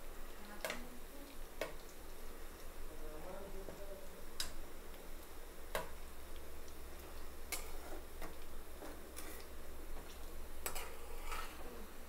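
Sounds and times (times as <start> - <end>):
oil sizzling from deep-frying: 0.0 - 12.0
metal spoon scraping pan: 7.5 - 8.0, 10.6 - 11.8.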